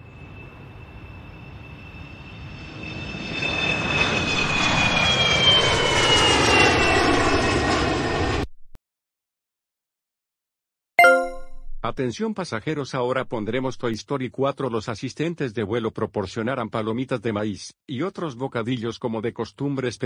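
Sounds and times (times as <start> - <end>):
jet engine roar with whine: 0.0 - 8.5.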